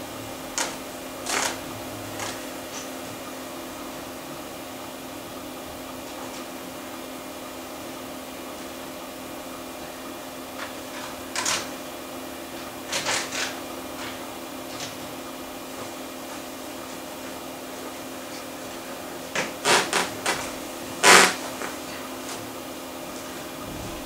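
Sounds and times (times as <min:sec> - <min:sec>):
hard drive hum: 0:00.0 - 0:24.0
hard drive seeking clicks: 0:00.5 - 0:03.4.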